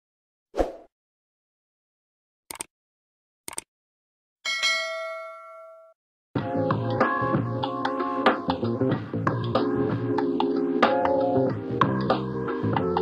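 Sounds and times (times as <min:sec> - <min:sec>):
short clicks: 0:02.5 - 0:02.7, 0:03.5 - 0:03.7
notification bell ding: 0:04.5 - 0:06.0.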